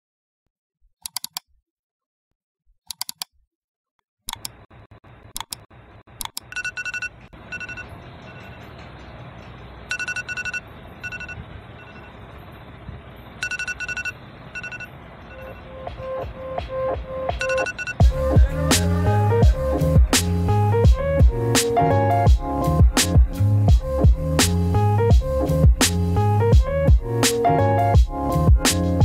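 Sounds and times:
mouse clicks: 0:01.0 - 0:01.4, 0:02.9 - 0:03.3, 0:04.3 - 0:04.6
electronic alarm beeping: 0:06.4 - 0:08.7, 0:09.9 - 0:12.3, 0:13.4 - 0:16.4, 0:17.3 - 0:18.1.

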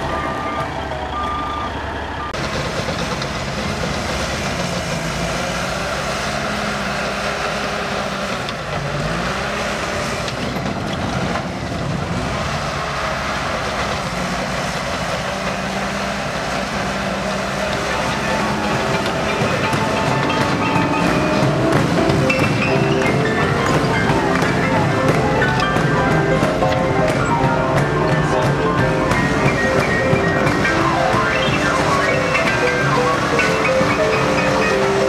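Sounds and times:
reversing alarm beeping: 0:00.0 - 0:02.7, 0:17.5 - 0:35.0
bulldozer diesel engine under load: 0:00.0 - 0:35.0.

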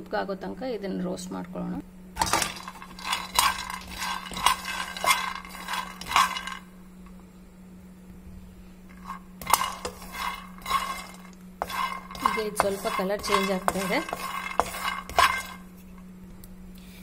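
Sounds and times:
peanuts rattling in a pan: 0:02.2 - 0:06.7, 0:09.0 - 0:15.7.

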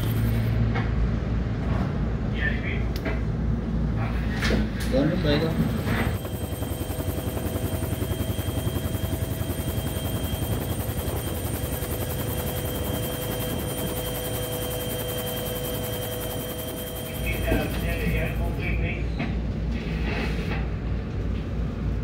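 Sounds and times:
helicopter engine whine: 0:00.0 - 0:00.7, 0:04.7 - 0:19.5
helicopter rotor chop: 0:00.0 - 0:00.7, 0:04.7 - 0:19.0.

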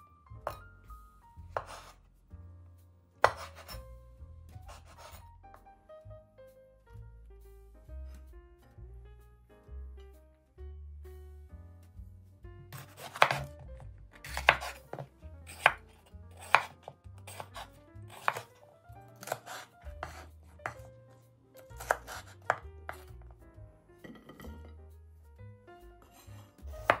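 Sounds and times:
knife chopping on wooden board: 0:01.5 - 0:02.0, 0:03.2 - 0:03.8, 0:04.5 - 0:05.2, 0:12.7 - 0:21.0, 0:21.6 - 0:23.2, 0:26.0 - 0:27.0.

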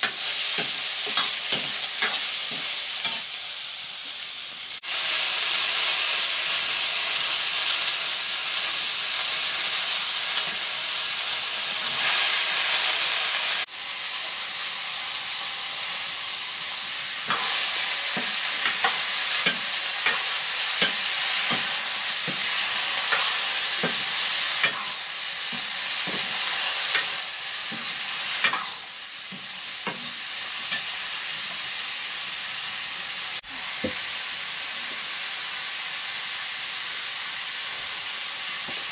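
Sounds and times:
vegetables sizzling in a wok: 0:00.0 - 0:38.9
ladle scraping and knocking wok: 0:17.3 - 0:28.8.

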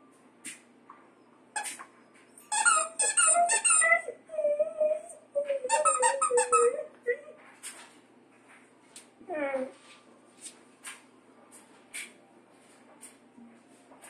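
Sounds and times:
squeaky toy squeaking: 0:01.6 - 0:01.8, 0:02.4 - 0:04.1, 0:05.7 - 0:06.9.

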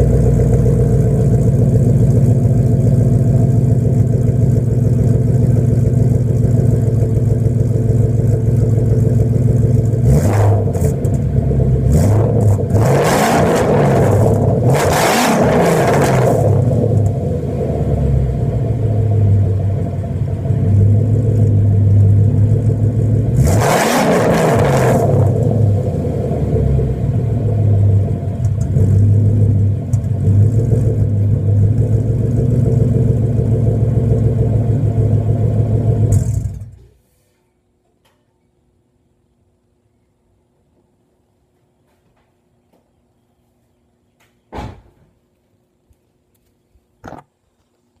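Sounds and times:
car engine idling and revving: 0:00.0 - 0:36.9.

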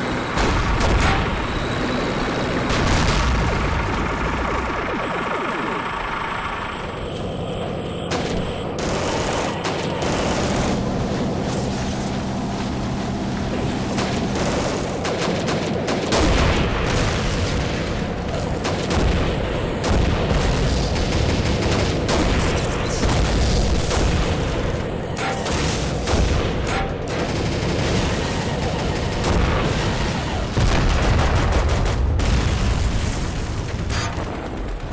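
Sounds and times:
rapid gunfire: 0:07.9 - 0:12.2, 0:12.8 - 0:34.9.

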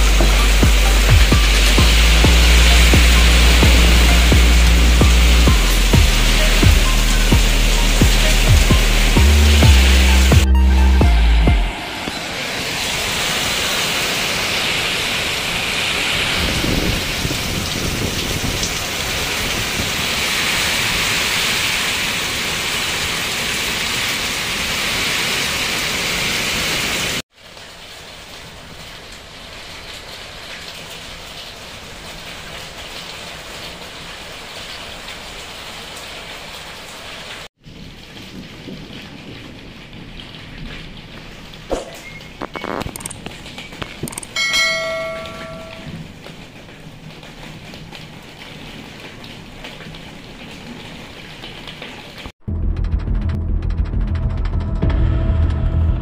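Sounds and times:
heavy rain pouring: 0:00.0 - 0:52.3
low thunder rumble: 0:37.7 - 0:42.6.

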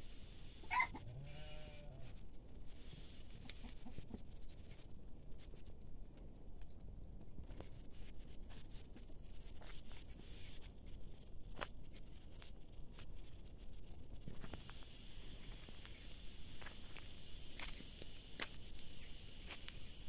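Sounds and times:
high insect chirring: 0:00.0 - 0:05.4, 0:07.7 - 0:20.0
light ticks and crackles: 0:03.4 - 0:16.1.

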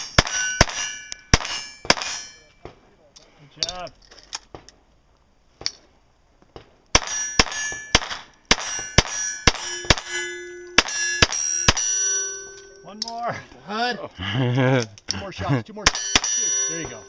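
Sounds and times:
pistol shots: 0:00.0 - 0:02.3, 0:06.9 - 0:10.1, 0:15.9 - 0:17.0
steel plate target clanging: 0:00.0 - 0:02.7, 0:07.0 - 0:13.3, 0:15.9 - 0:17.0.

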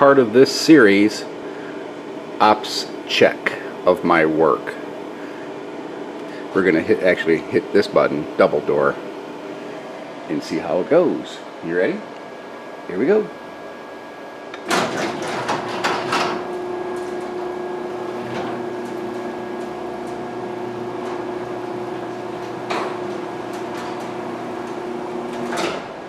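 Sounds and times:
garage door opener motor hum: 0:00.0 - 0:26.0
garage door clunk on floor: 0:14.6 - 0:16.4, 0:25.3 - 0:26.0
garage door clatter: 0:14.6 - 0:26.0.

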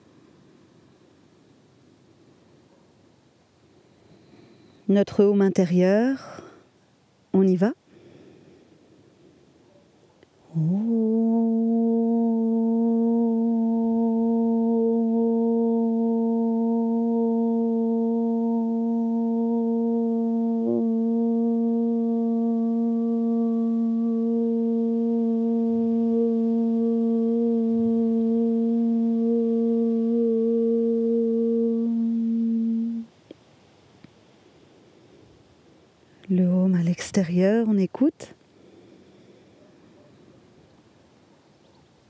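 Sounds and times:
woman humming a low note: 0:10.4 - 0:33.1.

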